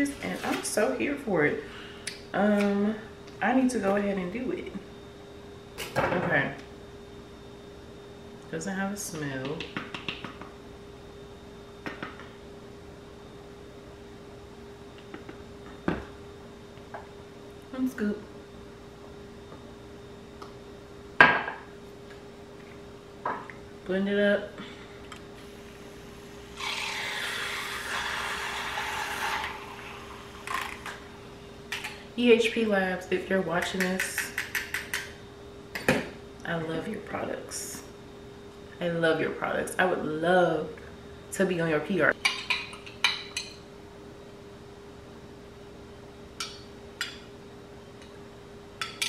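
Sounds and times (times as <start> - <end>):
faint steady hum: 0.0 - 49.0
milk frother whirring in water: 25.5 - 31.1.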